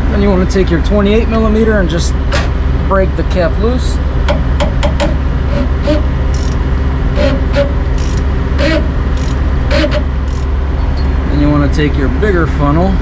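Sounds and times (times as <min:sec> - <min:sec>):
steady low rumble: 0:00.0 - 0:13.0
ratchet clicking: 0:06.3 - 0:10.5.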